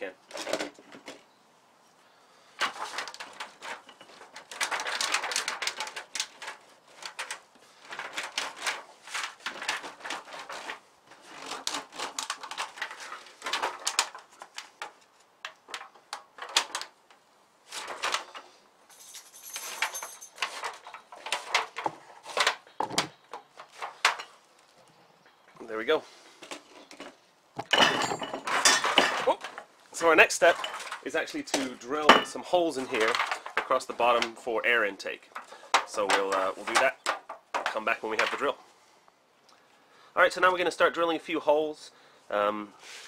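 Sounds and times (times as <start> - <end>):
aluminium foil crinkling: 2.6 - 17.0.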